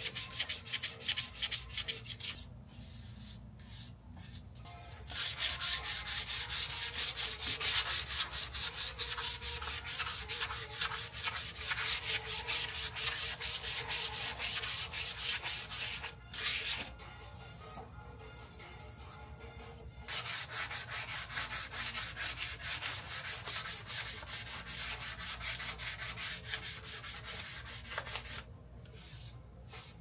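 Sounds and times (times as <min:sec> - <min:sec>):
sandpaper rubbing on metal: 0:05.1 - 0:16.9, 0:20.1 - 0:28.4.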